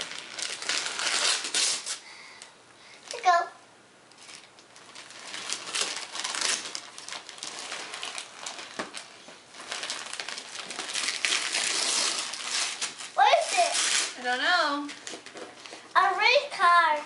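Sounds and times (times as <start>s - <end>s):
paper ripping: 0.0s - 2.0s, 4.2s - 15.8s
wrapping paper crinkling: 0.0s - 2.0s, 4.1s - 16.6s.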